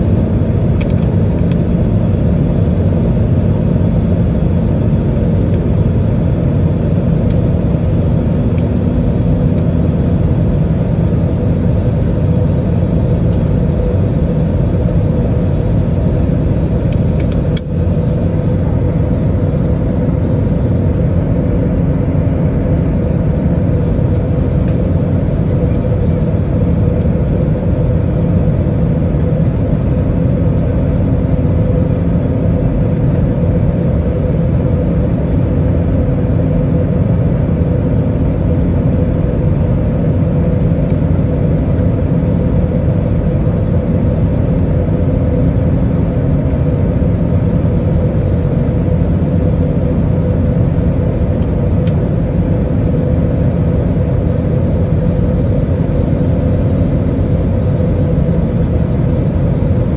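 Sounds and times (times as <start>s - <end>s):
airplane cabin engine rumble: 0.0s - 59.9s
constant hum: 0.0s - 59.9s.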